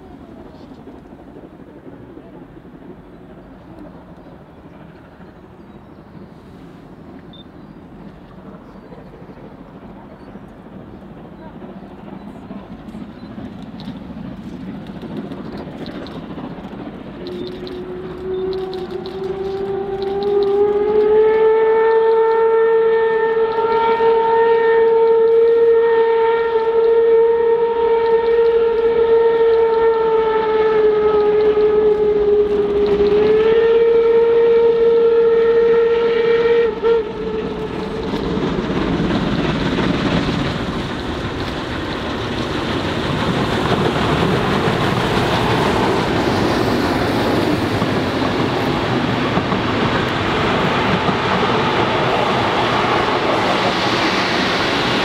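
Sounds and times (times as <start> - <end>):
locomotive running noise: 0.0 - 55.0
train rolling: 0.0 - 55.0
steam whistle long blast: 17.8 - 37.7.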